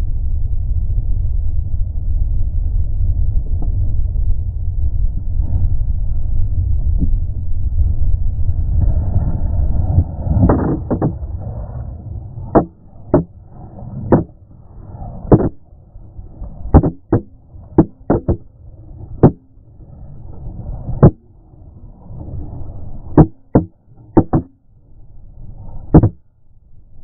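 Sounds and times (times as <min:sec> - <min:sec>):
low rumble: 0:00.0 - 0:27.0
camera knocking on ground: 0:10.3 - 0:11.2, 0:14.0 - 0:14.3, 0:15.3 - 0:15.6, 0:16.7 - 0:18.5, 0:23.2 - 0:24.5, 0:25.9 - 0:26.2.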